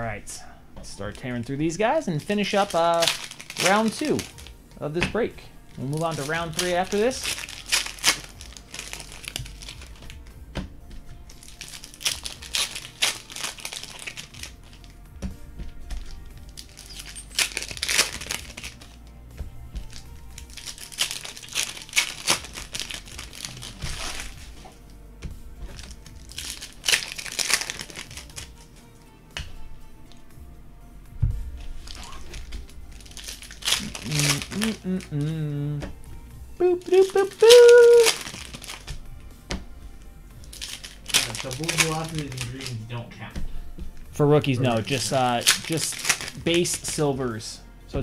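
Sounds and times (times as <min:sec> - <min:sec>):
background music: 0:00.0 - 0:48.0
wrappers crinkling and tearing: 0:02.0 - 0:04.6, 0:05.6 - 0:10.3, 0:11.2 - 0:15.0, 0:16.0 - 0:19.1, 0:19.8 - 0:25.0, 0:25.6 - 0:28.8, 0:31.7 - 0:35.4, 0:36.6 - 0:39.0, 0:40.4 - 0:42.9, 0:44.6 - 0:47.5.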